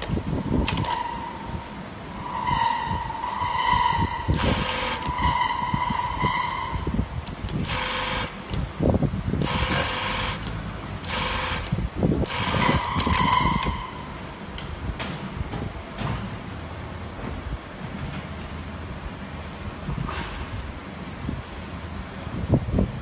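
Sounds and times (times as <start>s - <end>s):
sewing machine motor running: 7.6s - 8.6s, 9.4s - 12.9s.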